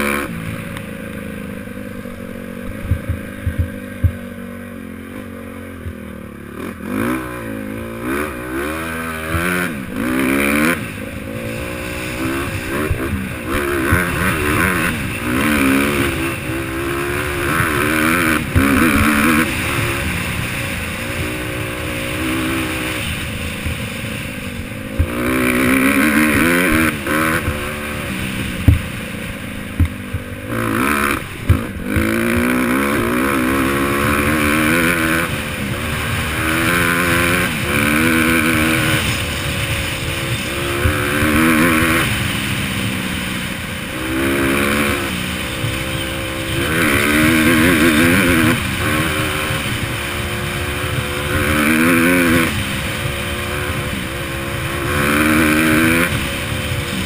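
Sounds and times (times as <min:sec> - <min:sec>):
dirt bike engine revving: 0:00.0 - 0:57.0.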